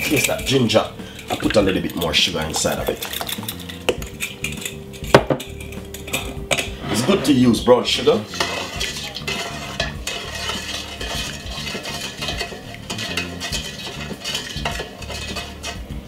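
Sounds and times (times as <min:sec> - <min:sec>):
wooden spoon stirring liquid: 0:00.0 - 0:16.0
spoon knocking on steel bowl: 0:02.8 - 0:06.8.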